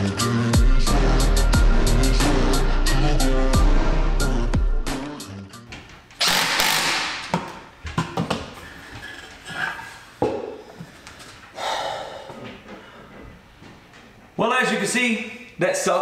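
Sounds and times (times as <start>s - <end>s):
cordless drill running: 6.2s - 7.0s.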